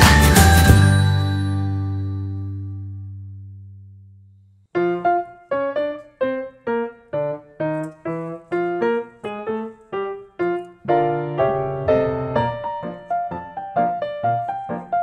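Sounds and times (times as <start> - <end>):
piano single notes: 0.0 - 15.0
low tone: 0.6 - 4.6.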